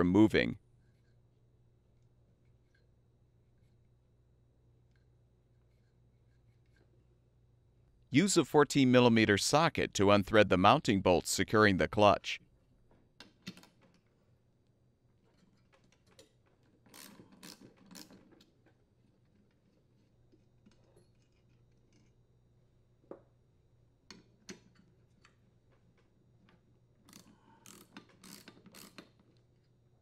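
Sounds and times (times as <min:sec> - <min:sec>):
ratchet wrench clicking: 0:27.1 - 0:29.1.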